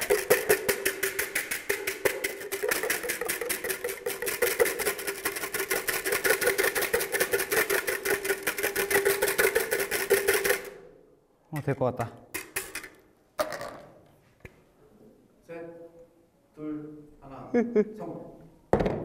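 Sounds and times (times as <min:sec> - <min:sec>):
whisk clattering against bowl: 0:00.0 - 0:10.9.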